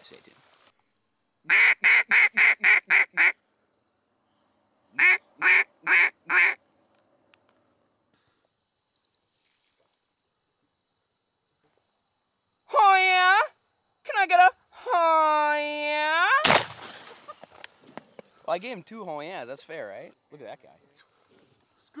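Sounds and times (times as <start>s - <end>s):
wooden duck call quacks: 1.5s - 3.4s, 5.0s - 6.6s.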